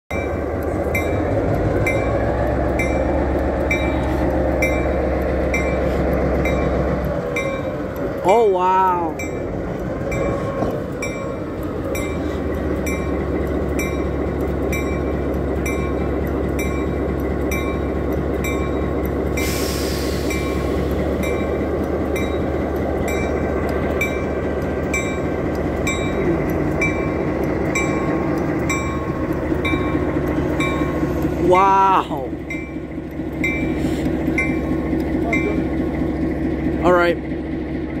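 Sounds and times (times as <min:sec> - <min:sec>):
locomotive bell ringing: 0:00.1 - 0:37.7
diesel locomotive engine running: 0:00.1 - 0:38.0
air hiss: 0:19.4 - 0:20.9.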